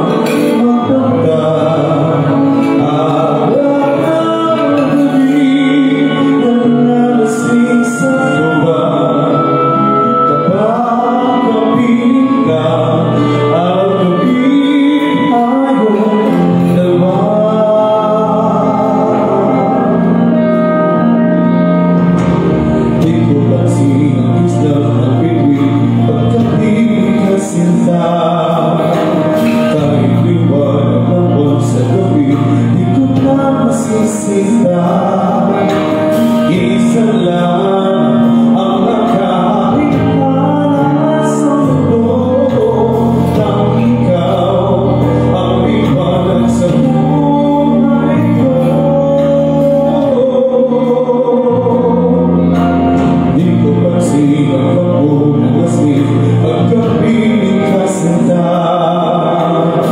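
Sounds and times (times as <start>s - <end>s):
instrumental backing music: 0.0s - 59.9s
man singing into microphone: 0.0s - 59.9s.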